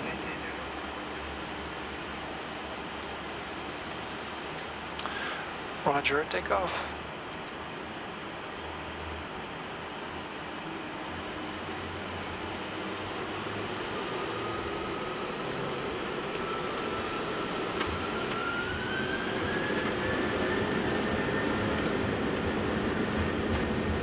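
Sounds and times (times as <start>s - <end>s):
rising engine whine: 0.0s - 6.4s, 8.1s - 24.0s
jet engines spooling up: 10.1s - 24.0s.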